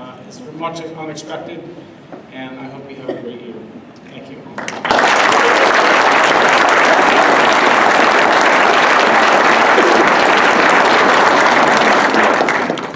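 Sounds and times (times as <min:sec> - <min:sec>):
audience applauding: 0:04.6 - 0:12.9.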